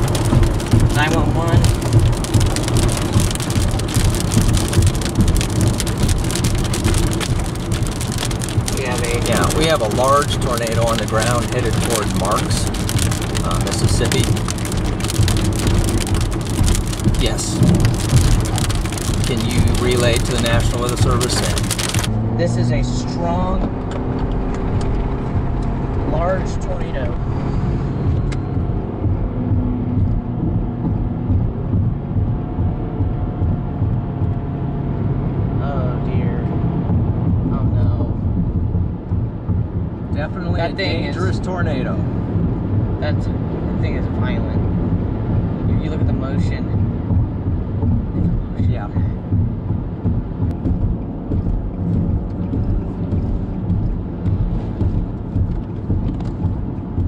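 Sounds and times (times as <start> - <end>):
raindrops ticking on windshield: 0.0 - 22.1, 36.0 - 57.0
car road noise: 0.0 - 57.0.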